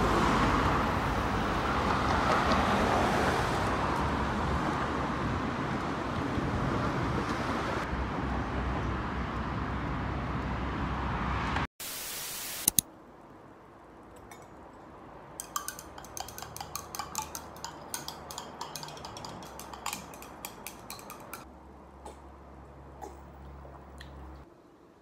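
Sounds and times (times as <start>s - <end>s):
spoon clinking on tableware: 15.4s - 21.4s.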